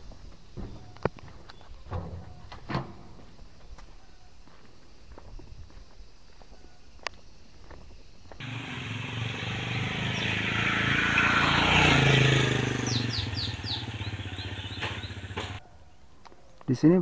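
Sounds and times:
motorcycle riding past: 0:08.4 - 0:15.6.

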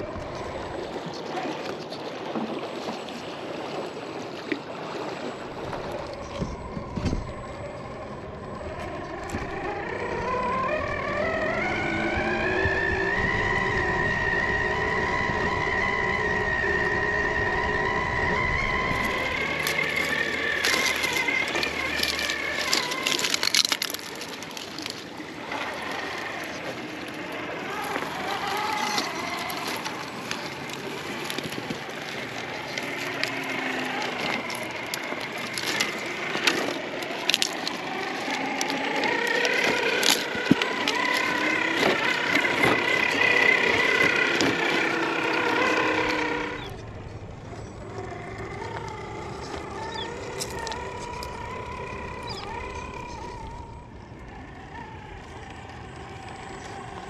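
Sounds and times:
electric motor whining: 0:05.0 - 0:57.0
tyres crunching over rocks: 0:18.3 - 0:57.0.

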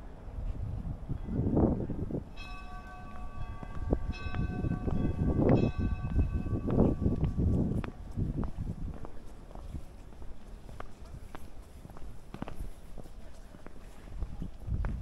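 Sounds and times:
large bell ringing: 0:02.3 - 0:07.8.

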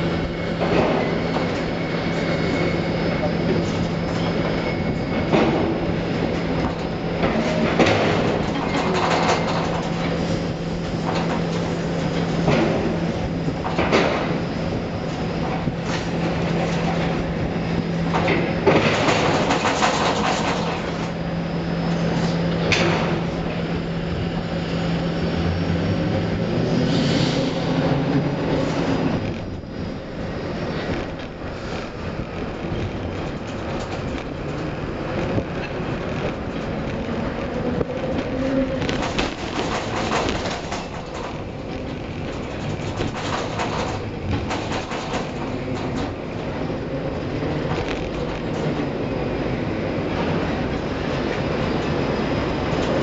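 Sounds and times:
crane electric hum: 0:00.0 - 0:53.0
faint machinery whine: 0:00.0 - 0:53.0
metallic rattling and clanking: 0:03.6 - 0:21.3, 0:27.8 - 0:48.9.

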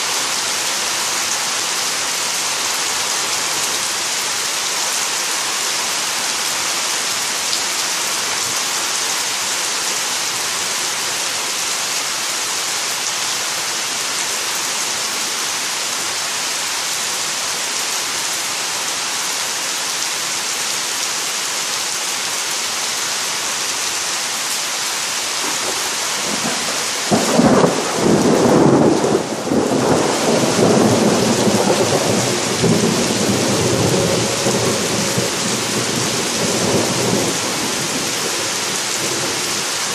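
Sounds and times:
rain falling on trees and grass: 0:00.0 - 0:39.9
thunder clap rumbling: 0:25.4 - 0:34.7.

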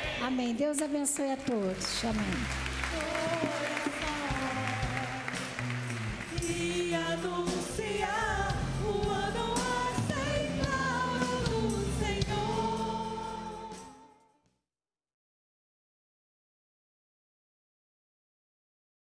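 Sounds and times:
live band: 0:01.5 - 0:14.1
voices singing gospel song: 0:02.8 - 0:14.2.

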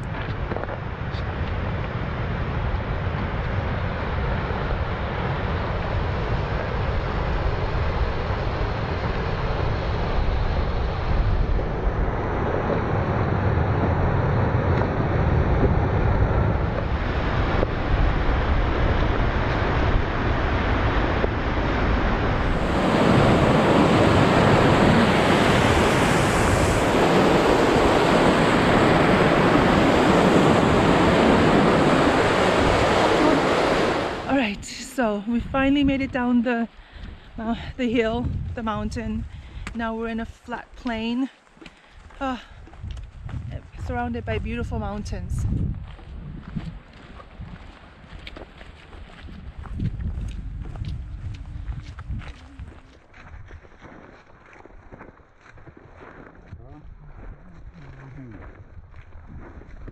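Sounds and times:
wind buffeting microphone: 0:00.0 - 0:59.9
mountain stream rushing: 0:22.1 - 0:34.8.

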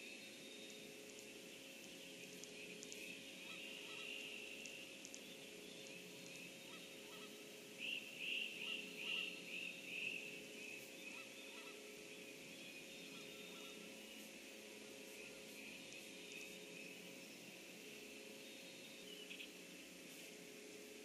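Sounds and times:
wild birds singing: 0:00.0 - 0:20.2
steady faint hum: 0:00.0 - 0:21.0
bird calling close by: 0:03.0 - 0:14.1.

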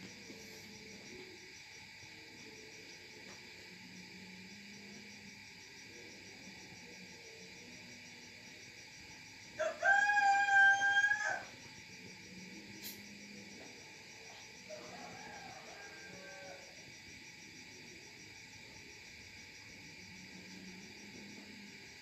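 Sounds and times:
crickets chirping: 0:00.0 - 0:22.0
rooster crowing: 0:09.6 - 0:11.6, 0:14.6 - 0:16.8.

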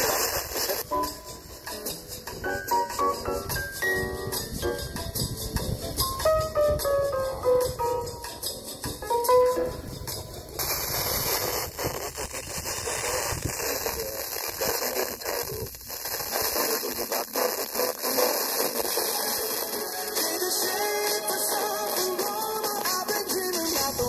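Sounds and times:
radio static hiss: 0:00.0 - 0:03.5, 0:09.5 - 0:24.0
faint radio station audio: 0:09.5 - 0:24.0.

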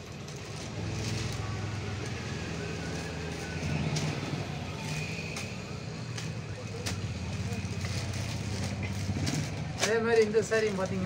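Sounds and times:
fabric rustling: 0:06.9 - 0:11.0.

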